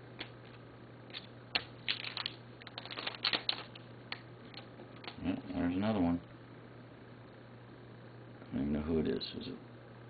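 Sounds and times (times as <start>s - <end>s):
steady low hum: 0.0s - 10.0s
trading cards clicking and snapping: 0.2s - 5.3s.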